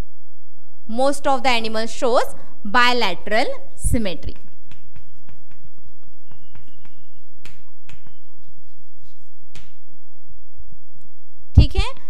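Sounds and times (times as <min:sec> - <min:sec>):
chalk tapping and scraping on chalkboard: 0:04.3 - 0:09.7.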